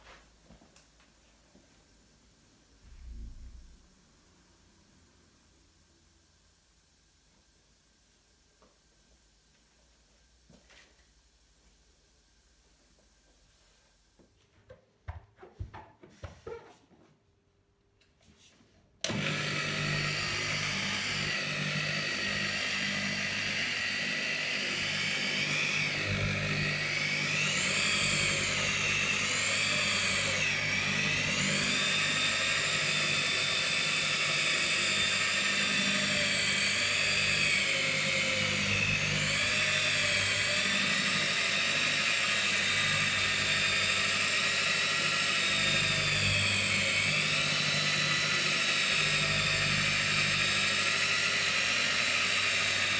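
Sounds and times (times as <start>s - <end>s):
rotary polisher motor whine: 19.0s - 52.9s.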